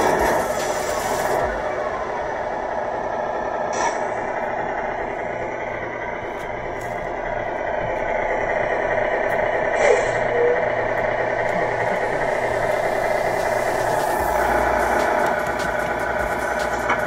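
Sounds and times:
toy truck motor running: 8.6 - 17.0.

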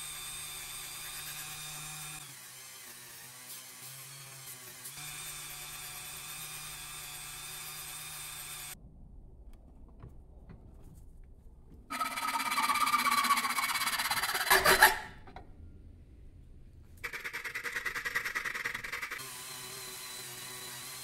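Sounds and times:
hacksaw sawing metal: 0.0 - 8.8, 11.9 - 15.4, 18.0 - 21.0
rotary tool sanding metal: 11.9 - 15.2.

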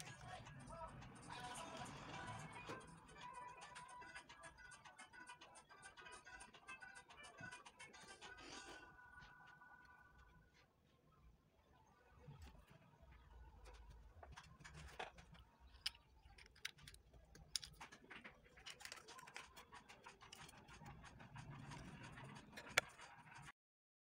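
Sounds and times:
light scratching: 12.3 - 23.5
small objects clicking: 13.7 - 23.1.

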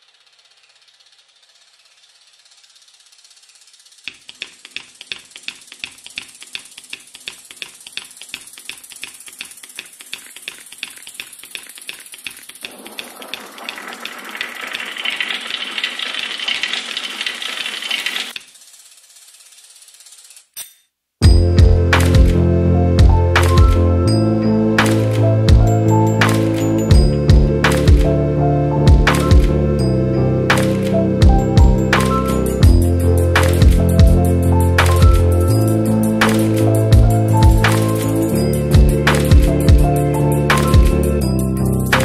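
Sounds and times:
mechanical ticking: 0.0 - 22.4
rushing noise: 12.7 - 16.6.

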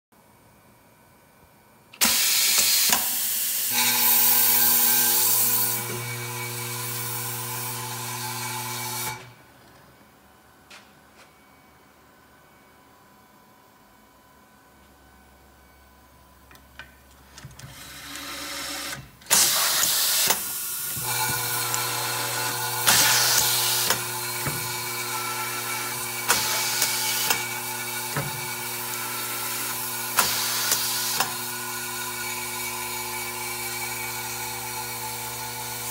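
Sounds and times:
electric screwdriver driving screws: 17.7 - 29.1, 29.7 - 31.4.

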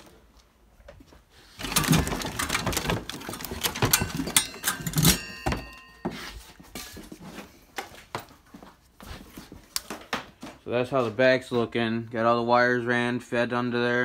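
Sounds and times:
rummaging knocks and clatter: 1.6 - 7.6.

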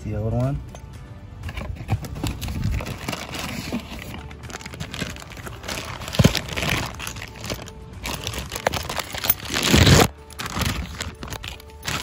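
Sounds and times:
plastic bag crinkling: 2.4 - 12.0.

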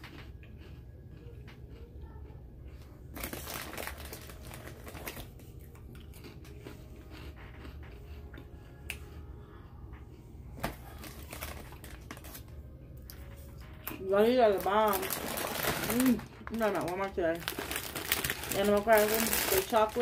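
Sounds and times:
wrapper crinkling: 3.1 - 5.8, 10.6 - 12.6, 13.2 - 20.0.

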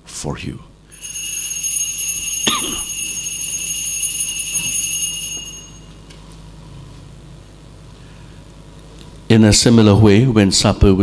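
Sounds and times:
altar bells ringing: 0.9 - 6.2.

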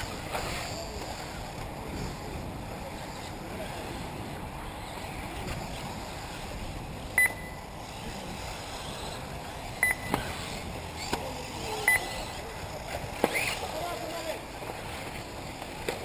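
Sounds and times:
short high electronic beeps: 7.2 - 7.6, 9.8 - 10.1, 11.9 - 12.1.

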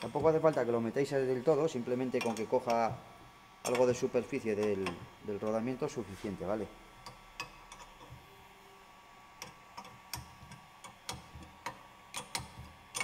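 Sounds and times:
wrench clicking on bolts: 2.2 - 2.9, 3.6 - 4.0, 4.6 - 5.0, 7.0 - 8.2, 9.4 - 13.0.

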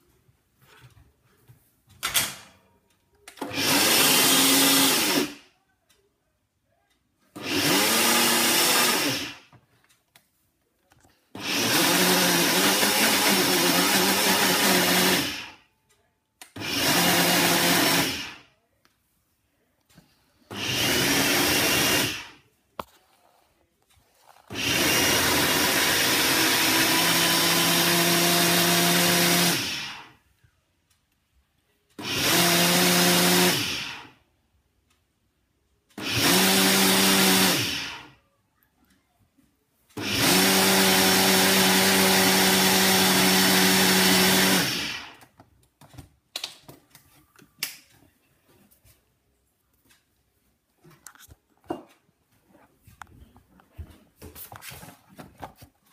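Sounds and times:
electric blender whirring: 3.4 - 5.4, 7.4 - 9.5, 11.4 - 15.6, 16.6 - 18.4, 20.5 - 22.4, 24.5 - 30.1, 32.0 - 34.2, 36.0 - 38.2, 40.0 - 45.2.

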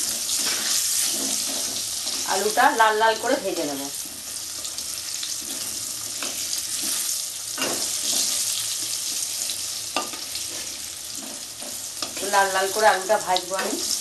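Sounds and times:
metal spatula scraping pan: 0.0 - 2.5, 5.4 - 8.8, 10.0 - 12.6
potatoes sizzling in hot oil: 0.0 - 14.0.

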